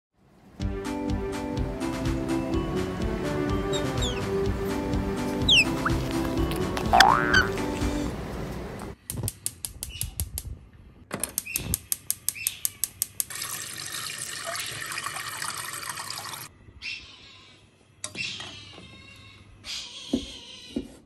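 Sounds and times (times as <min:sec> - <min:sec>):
background music: 0:00.6 - 0:08.3
tap water running into a pot: 0:13.3 - 0:16.5.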